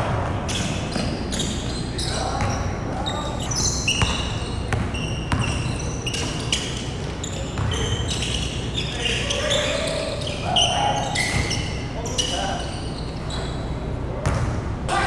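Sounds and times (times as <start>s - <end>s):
players' voices: 0.0s - 15.0s
sneaker squeaks: 0.2s - 14.6s
basketball bouncing: 3.8s - 6.4s, 7.5s - 7.8s, 14.2s - 14.6s.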